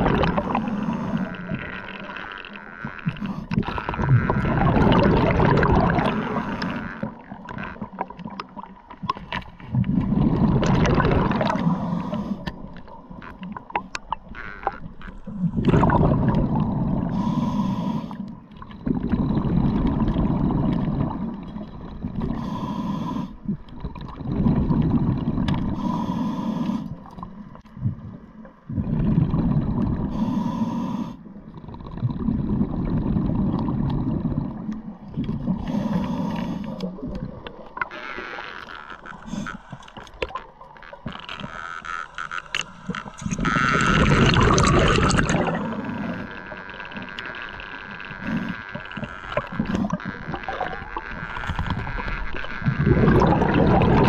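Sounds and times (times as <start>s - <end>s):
exhaled bubbles rumbling: 0.0s - 17.6s, 18.3s - 22.5s, 23.4s - 26.0s, 26.9s - 30.2s, 31.3s - 54.0s
regulator inhale hiss: 0.4s - 1.5s, 11.5s - 12.6s, 17.1s - 18.4s, 22.2s - 23.5s, 25.7s - 27.2s, 30.0s - 31.4s, 35.5s - 37.0s, 39.1s - 40.2s, 45.3s - 46.6s, 48.2s - 50.0s.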